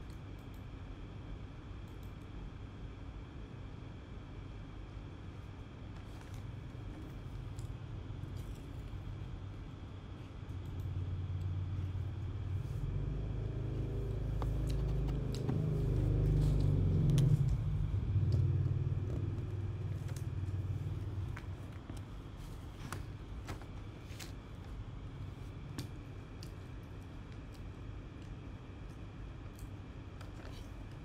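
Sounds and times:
low rumble: 11.0 - 23.0.

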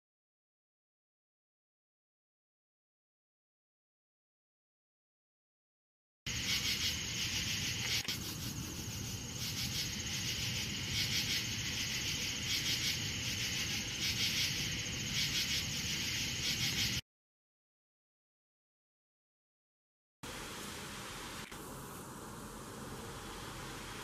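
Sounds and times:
crickets chirping: 6.3 - 17.0, 20.3 - 24.0.

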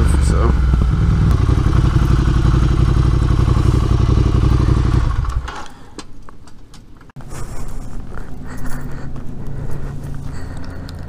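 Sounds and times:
motorcycle engine idling: 0.0 - 5.6.

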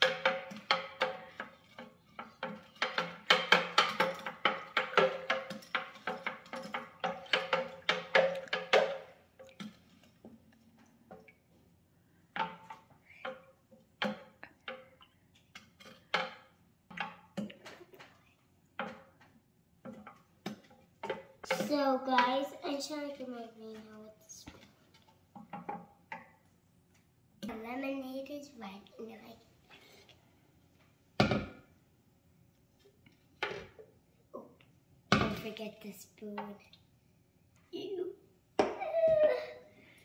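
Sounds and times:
wooden spoon knocking plastic pitcher: 0.0 - 10.4, 12.3 - 15.0, 18.8 - 22.7, 25.3 - 26.4.

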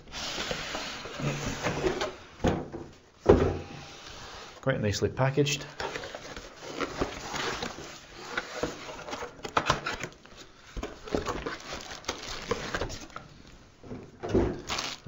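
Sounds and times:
plastic wrapping crinkling: 9.8 - 13.3, 14.6 - 15.0.

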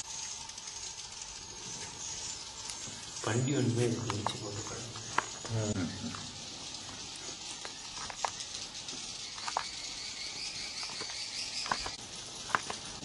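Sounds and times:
insects chirring: 0.0 - 13.0
sharp clicks: 4.0 - 13.0.

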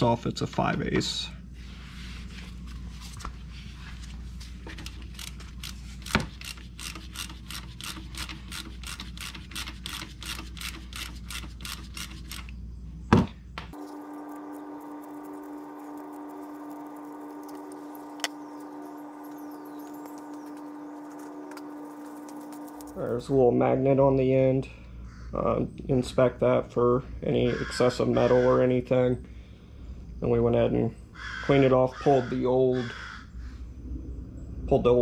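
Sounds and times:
steady hum: 0.0 - 26.0
socket ratchet clicking: 5.1 - 12.5.

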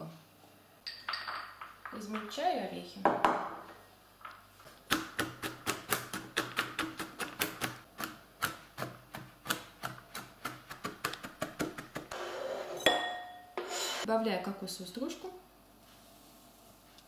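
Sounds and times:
knife chopping nuts on plastic board: 4.7 - 12.1.

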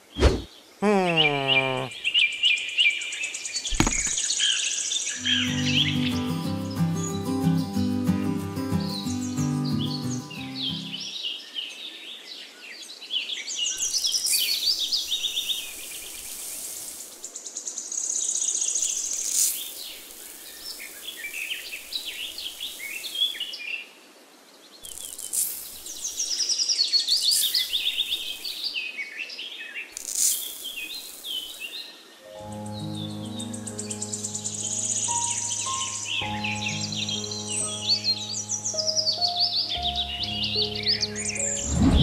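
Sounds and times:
small birds chirping: 0.0 - 23.8, 24.5 - 41.7
sand poured from metal bowl: 16.1 - 17.1, 19.2 - 19.8, 24.9 - 26.0, 30.0 - 31.3.

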